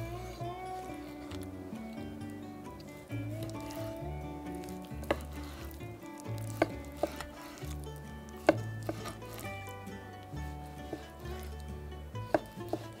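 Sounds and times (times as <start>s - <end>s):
soft background music: 0.0s - 13.0s
knife chopping on wooden board: 4.9s - 5.8s, 6.4s - 7.8s, 8.4s - 9.6s, 10.4s - 11.6s, 12.2s - 13.0s.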